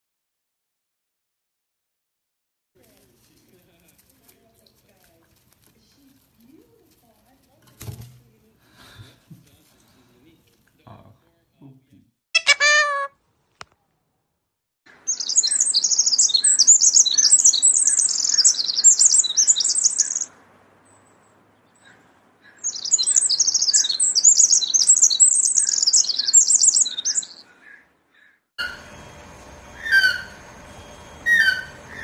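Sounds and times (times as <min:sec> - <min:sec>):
wren trilling song: 0:14.9 - 0:20.3, 0:21.6 - 0:32.0.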